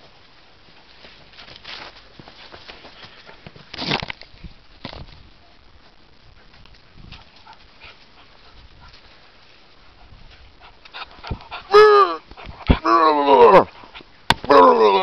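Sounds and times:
faint rustling: 0.0 - 11.6.

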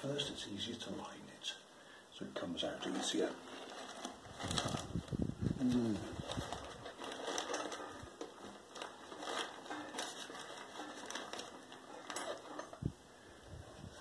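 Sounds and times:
paper and cardboard crumpling: 2.7 - 12.8.

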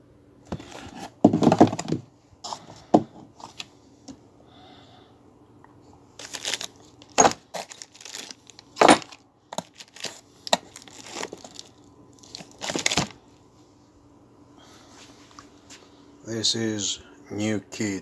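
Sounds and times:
plastic wrapping crinkling: 6.2 - 13.2.

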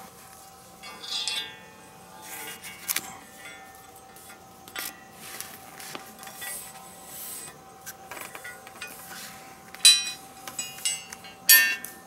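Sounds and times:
sharp ringing metal clink: 0.8 - 2.6, 9.8 - 11.9.

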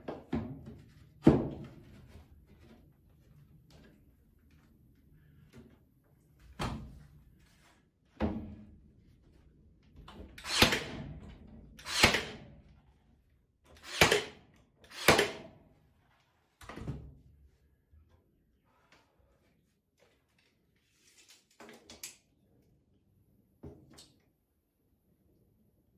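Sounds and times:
nail gun firing: 10.4 - 11.1, 11.8 - 12.5, 13.8 - 15.5.

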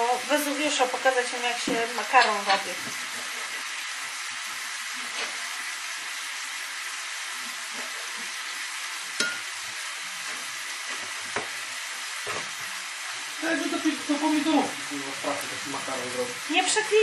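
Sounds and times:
food sizzling in frying pan: 0.0 - 17.0
kitchenware clinking: 9.2 - 9.5.

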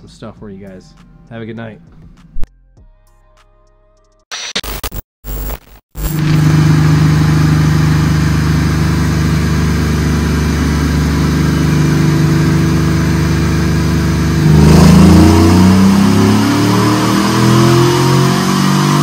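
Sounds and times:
engine running at steady speed: 6.1 - 19.0.

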